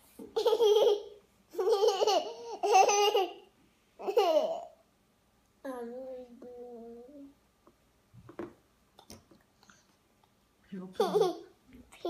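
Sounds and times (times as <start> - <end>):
child laughing: 0.2 - 4.7.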